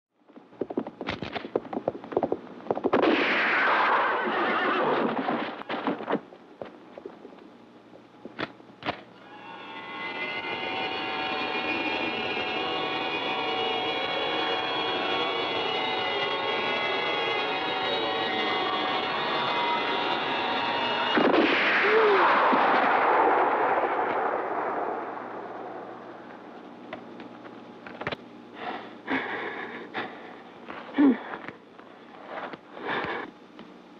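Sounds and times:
gunshot: 2.9s - 6.1s, 21.1s - 25.0s
steady sustained drone: 9.2s - 33.3s.

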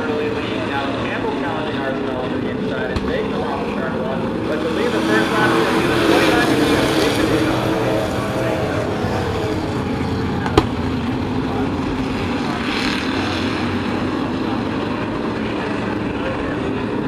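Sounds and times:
race truck engines droning: 0.0s - 17.0s.

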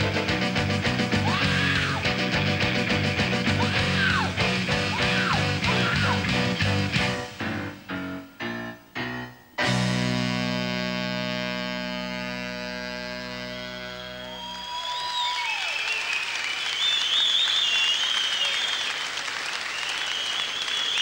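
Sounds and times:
live rock band playing: 0.0s - 14.3s.

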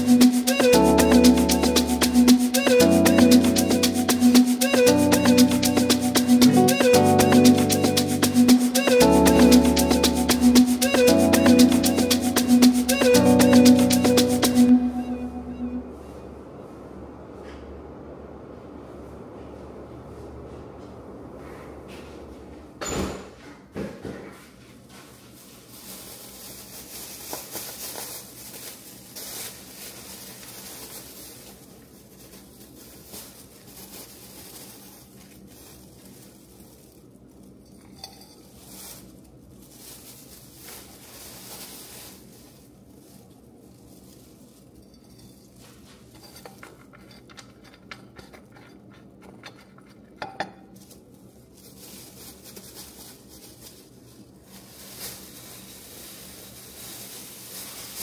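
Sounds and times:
dishes and cutlery clinking: 37.6s - 38.7s, 44.8s - 50.8s.

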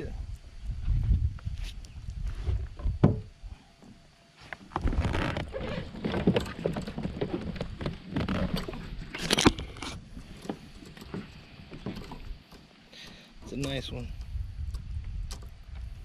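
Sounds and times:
thump: 2.8s - 3.3s.

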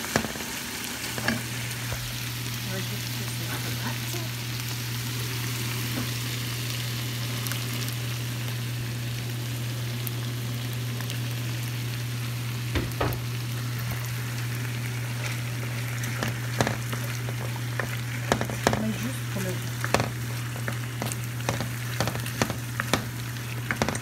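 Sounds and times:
food sizzling in a frying pan: 0.0s - 24.0s
knocks against pan: 12.7s - 13.2s, 18.3s - 18.9s, 19.9s - 20.2s, 21.0s - 24.0s
wooden spatula stirring: 16.1s - 24.0s.

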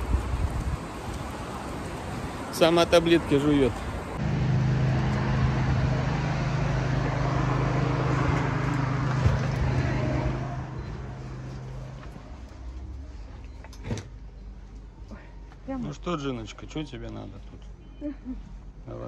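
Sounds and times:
vehicle engine running: 4.2s - 13.4s.

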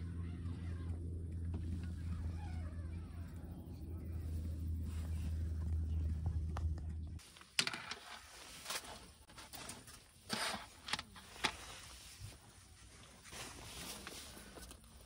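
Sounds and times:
mat rustling: 8.0s - 15.0s.

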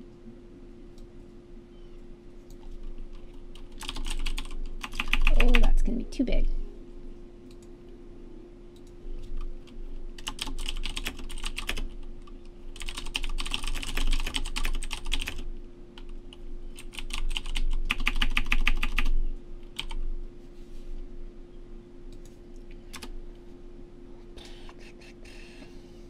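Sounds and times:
steady low hum: 0.0s - 26.0s
typing on computer keyboard: 2.4s - 5.8s, 8.8s - 12.0s, 12.8s - 15.4s, 16.8s - 19.1s, 19.8s - 20.0s, 22.9s - 23.1s.

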